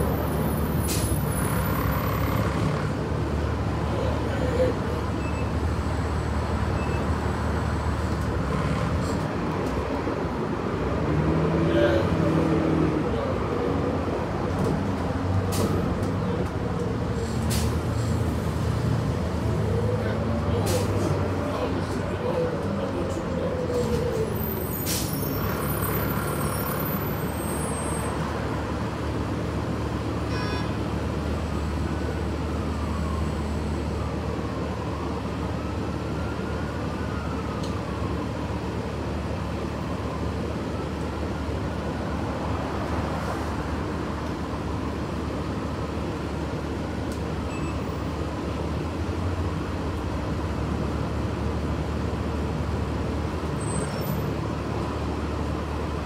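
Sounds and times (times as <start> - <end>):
bus engine drone: 0.0 - 56.0
road noise: 0.0 - 56.0.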